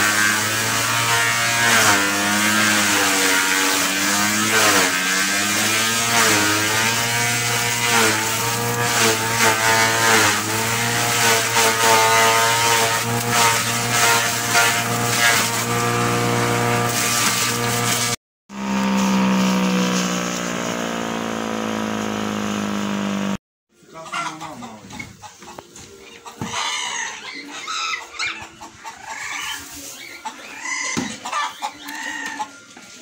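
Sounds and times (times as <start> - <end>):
forage chopper motor running: 0.0 - 23.4
grass stalks being cut: 0.0 - 23.4.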